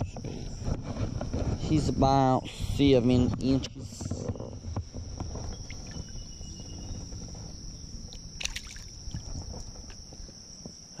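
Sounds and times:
high insect drone: 0.0s - 11.0s
water splashing: 5.6s - 6.2s, 8.1s - 9.9s
short sharp splash: 8.4s - 8.9s.

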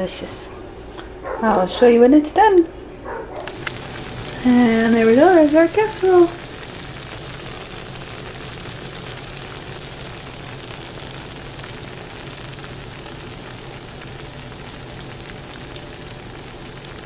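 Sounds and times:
steady hiss: 3.4s - 17.0s.

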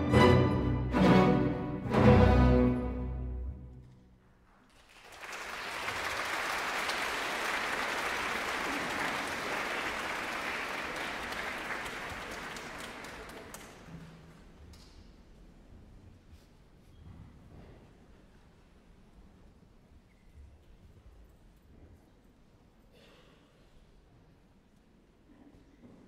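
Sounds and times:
audience applause: 4.7s - 14.2s.

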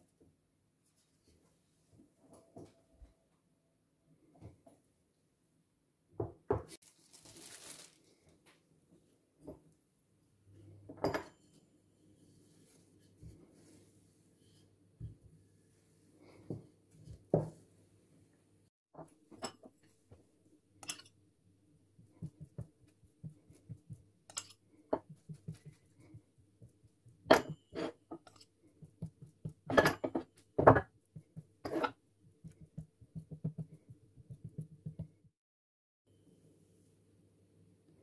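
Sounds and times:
rolling pin on dough: 22.0s - 24.4s, 25.0s - 35.3s
knife scraping bowl: 24.3s - 25.8s, 27.4s - 30.3s, 31.6s - 32.6s.

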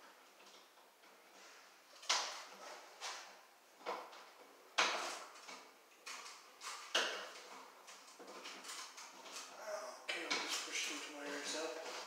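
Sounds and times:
plastic clacks and scrapes: 2.0s - 9.6s.

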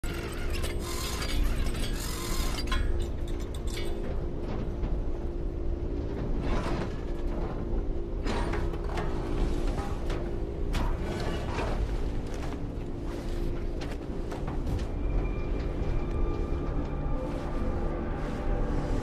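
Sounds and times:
film music: 11.6s - 19.0s
low drone: 14.0s - 19.0s.

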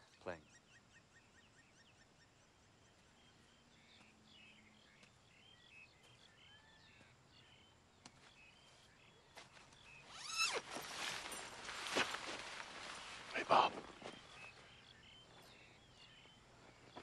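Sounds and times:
high chirping calls: 8.4s - 17.0s.

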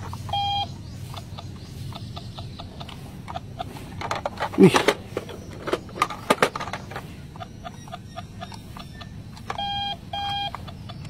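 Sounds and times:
faint short electronic blips: 0.3s - 0.7s, 7.4s - 10.6s
plastic toy clicks and knocks: 1.9s - 11.0s.

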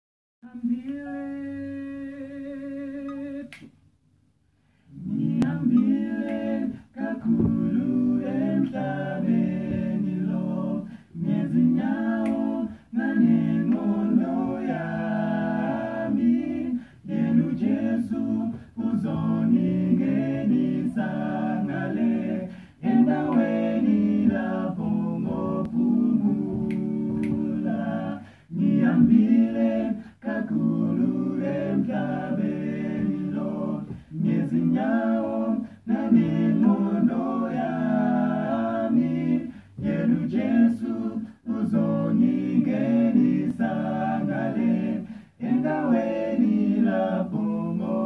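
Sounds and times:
male group singing a cappella: 0.4s - 3.7s, 4.9s - 48.0s.

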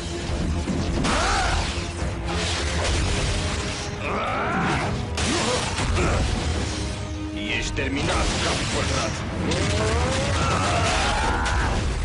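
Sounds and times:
dramatic background score: 0.0s - 12.0s
robotic mechanical effects: 7.5s - 12.0s.

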